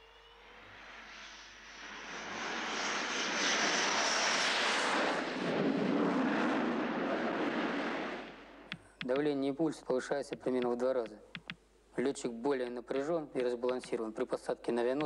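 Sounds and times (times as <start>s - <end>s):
high jet engine whine: 0.0s - 8.7s
jet fighter taking off: 0.1s - 8.6s.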